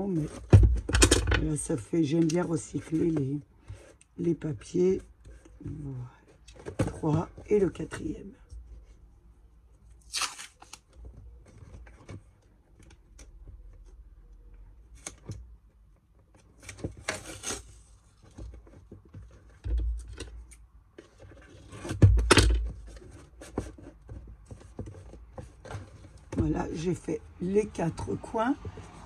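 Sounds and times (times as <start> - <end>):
packing tape ripping from roll: 10.0 - 10.9, 17.0 - 17.9.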